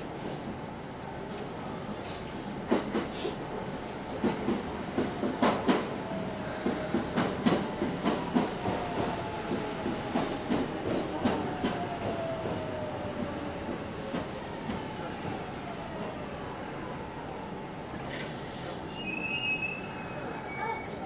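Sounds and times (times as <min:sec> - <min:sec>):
train running noise: 0:00.0 - 0:21.0
train wheels clacking over rail joints: 0:06.6 - 0:15.4.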